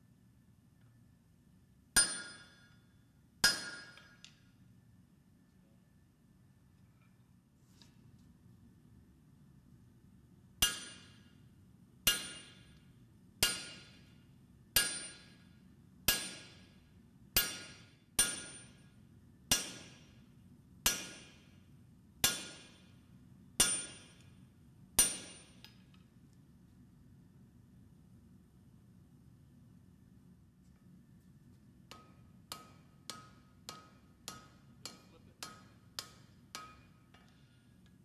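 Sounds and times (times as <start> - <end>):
hammer striking steel: 2.0 - 2.8, 3.4 - 4.3, 10.6 - 11.3, 12.1 - 12.8, 13.4 - 14.1, 14.8 - 15.5, 16.1 - 16.8, 17.4 - 18.9, 19.5 - 20.1, 20.9 - 21.5, 22.2 - 23.0, 23.6 - 24.3, 25.0 - 25.8, 31.9 - 37.5.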